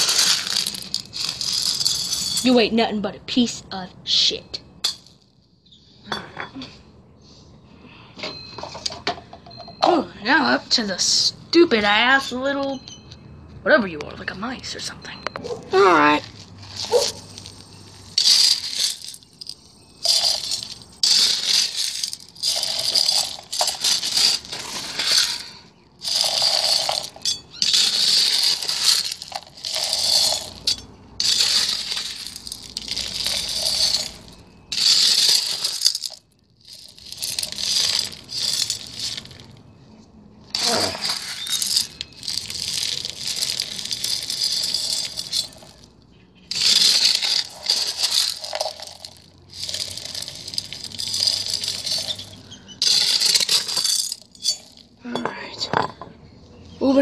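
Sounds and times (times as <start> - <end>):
gravel pouring onto toy: 40.6 - 45.7, 46.5 - 52.1.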